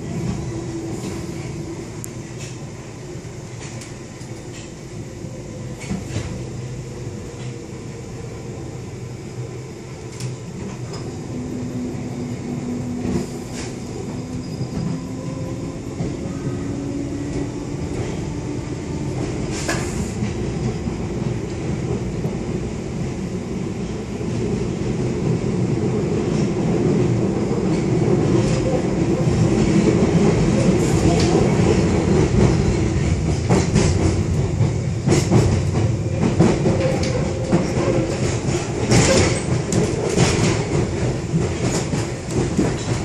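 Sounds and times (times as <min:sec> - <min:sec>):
train wheels rumbling on rail: 0:00.0 - 0:43.0.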